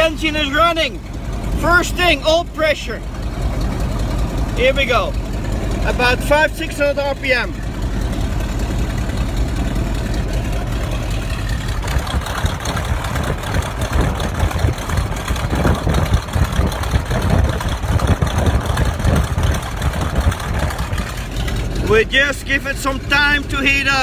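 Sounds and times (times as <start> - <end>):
radial engine idling: 0.0 - 24.0
wind buffeting microphone: 11.4 - 21.6.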